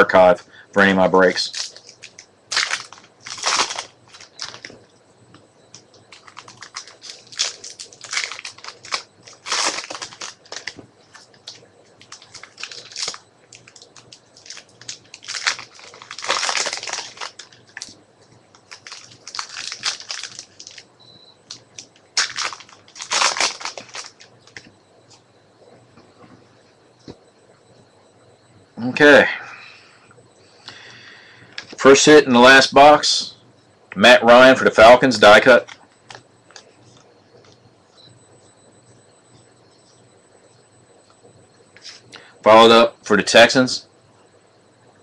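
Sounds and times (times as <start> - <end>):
wrappers tearing and crinkling: 1.4 - 4.8, 6.1 - 20.9, 21.5 - 24.6.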